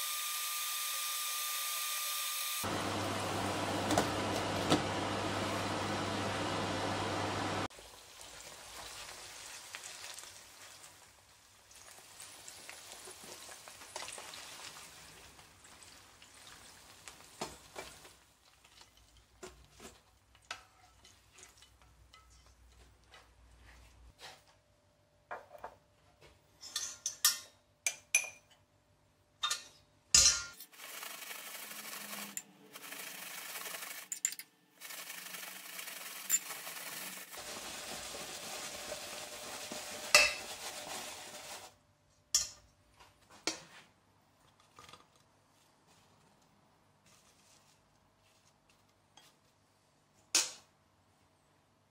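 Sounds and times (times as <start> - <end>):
potatoes rustling in colander: 7.8 - 20.4, 34.8 - 41.8, 47.0 - 49.6.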